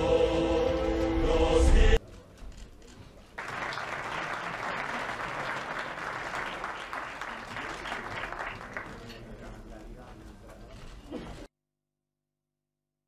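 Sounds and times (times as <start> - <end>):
audience applauding: 3.4 - 9.6.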